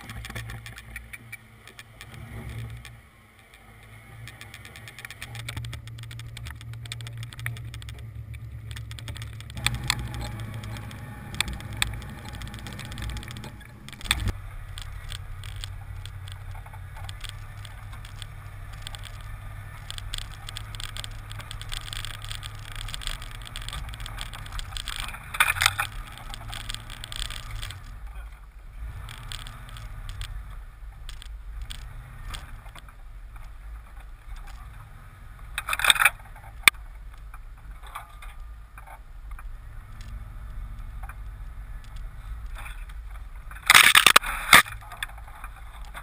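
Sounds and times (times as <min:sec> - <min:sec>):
truck engine running low: 0:00.0 - 0:32.8
small clicks and rattles: 0:00.0 - 0:46.0.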